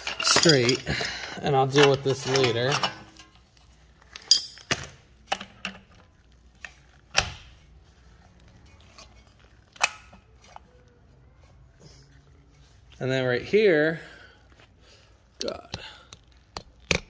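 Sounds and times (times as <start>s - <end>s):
metal tools clinking together: 0.0s - 3.4s, 4.1s - 5.8s.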